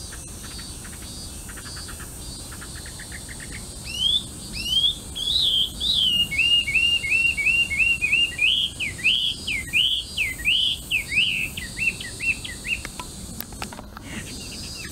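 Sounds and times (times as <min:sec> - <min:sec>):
bird singing whistled notes: 0:03.4 - 0:12.9.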